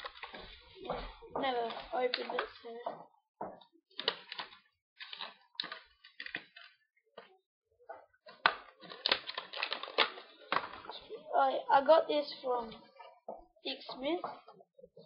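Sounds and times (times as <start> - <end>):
plastic packaging crinkling: 0.0 - 2.6, 4.0 - 6.8, 8.3 - 11.2.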